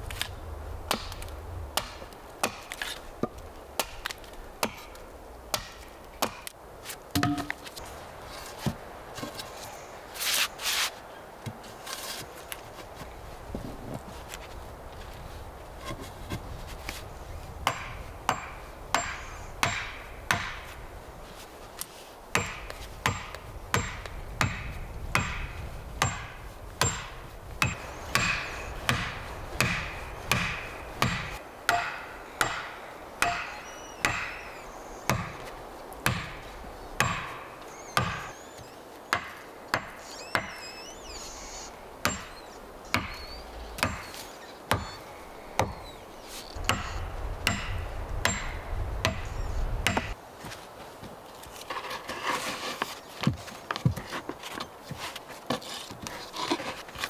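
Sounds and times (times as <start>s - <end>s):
axe striking wooden stakes: 0.9s - 6.5s, 7.1s - 7.7s, 17.6s - 20.8s, 22.3s - 38.4s, 39.1s - 40.7s, 42.0s - 45.0s, 45.6s - 45.8s, 46.6s - 50.2s.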